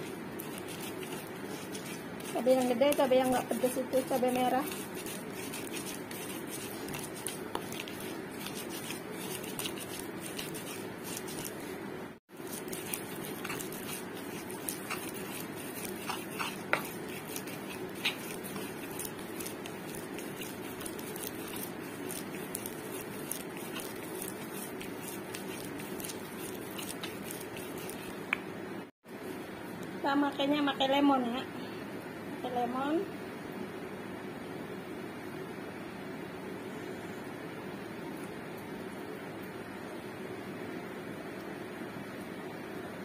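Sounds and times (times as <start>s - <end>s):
stone pestle grinding in mortar: 0.0s - 11.6s, 12.4s - 28.3s.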